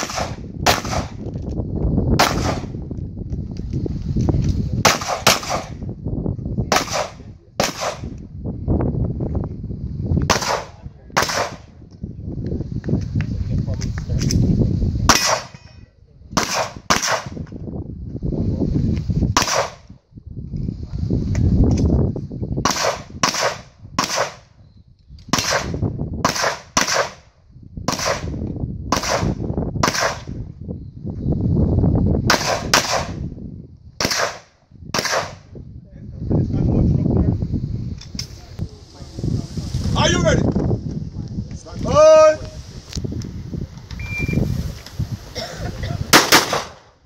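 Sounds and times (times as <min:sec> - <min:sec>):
pistol shots: 0:00.0 - 0:01.2, 0:02.2 - 0:02.7, 0:04.8 - 0:05.8, 0:06.7 - 0:08.1, 0:10.3 - 0:11.6, 0:15.1 - 0:15.6, 0:16.4 - 0:17.4, 0:19.4 - 0:19.8, 0:22.7 - 0:24.5, 0:25.3 - 0:27.3, 0:27.9 - 0:28.3, 0:28.9 - 0:30.3, 0:32.3 - 0:33.2, 0:34.0 - 0:35.5, 0:46.1 - 0:46.9.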